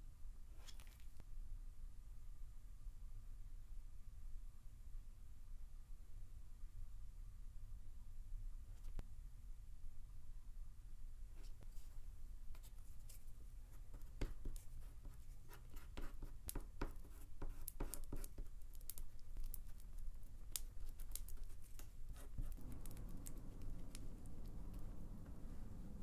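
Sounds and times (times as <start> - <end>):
stick stirring adhesive on card: 12.6 - 25.4.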